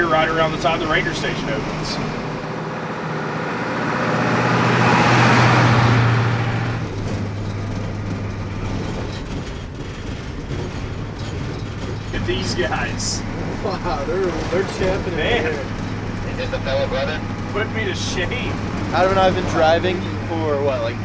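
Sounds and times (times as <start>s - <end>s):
bus engine: 0.0s - 21.0s.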